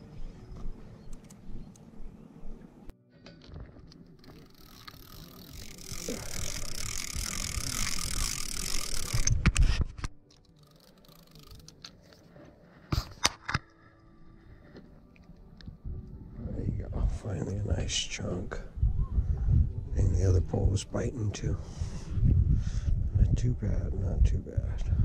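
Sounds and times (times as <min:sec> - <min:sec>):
sharp clicks: 0:01.1 - 0:01.9
fishing reel gear whirring: 0:04.2 - 0:09.7, 0:10.4 - 0:12.3.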